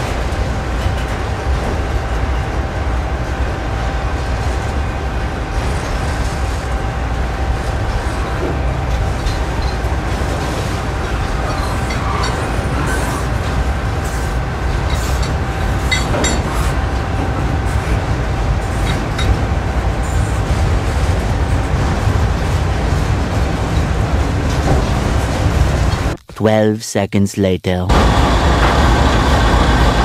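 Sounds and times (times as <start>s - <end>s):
train wheels rumbling on rail: 0.0s - 26.2s, 27.9s - 30.0s
wheels clicking over rail joints: 8.4s - 26.2s.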